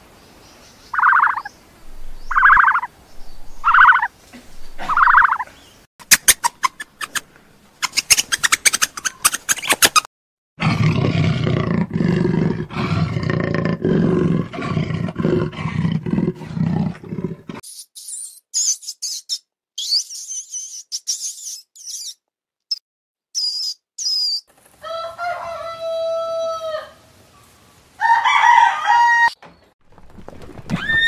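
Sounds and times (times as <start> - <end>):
meerkats chirping: 0.9 - 1.5, 2.3 - 2.9, 3.6 - 4.1, 4.8 - 5.5, 7.8 - 10.0, 17.7 - 22.2
short animal calls: 2.3 - 2.9, 3.6 - 4.1, 4.8 - 5.4
jaguar growling: 10.6 - 17.6.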